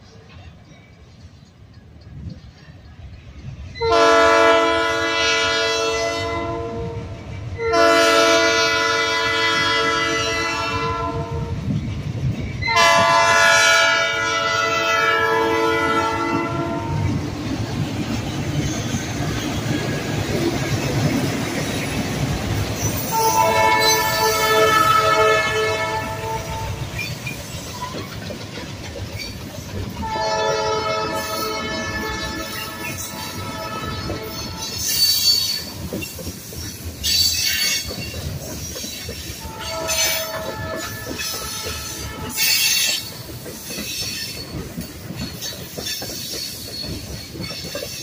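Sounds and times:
train wheels on rails: 0.0 - 48.0
locomotive air horn blasts: 3.8 - 11.6, 12.6 - 17.2, 23.1 - 26.9, 30.0 - 34.9, 39.4 - 42.9.

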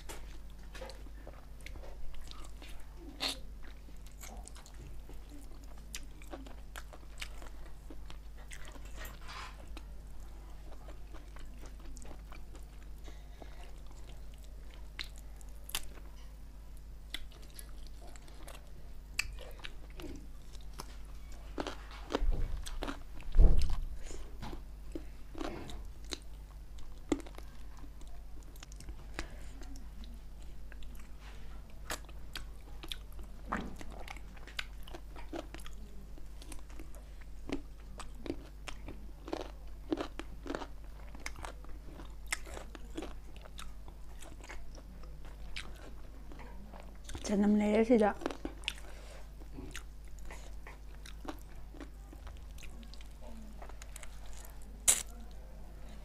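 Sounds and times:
low electrical hum: 0.0 - 56.0
biting and chewing with mouth clicks: 31.8 - 47.3, 48.2 - 55.2.

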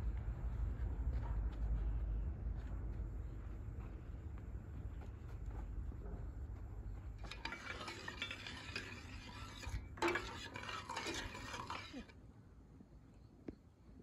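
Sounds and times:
metal spoon stirring in saucepan: 7.2 - 12.1.

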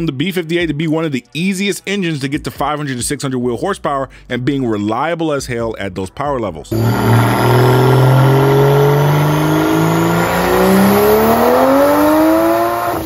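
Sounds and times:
car engine revving at full throttle: 6.7 - 13.0.

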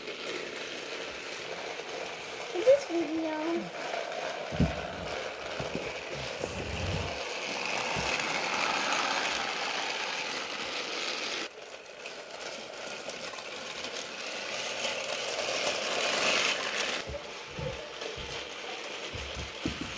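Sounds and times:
toy trains whirring on plastic track: 0.0 - 19.9.

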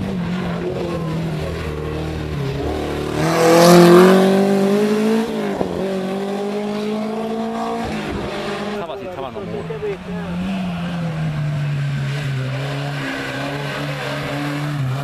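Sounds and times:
race car engine passing by: 0.0 - 15.0.

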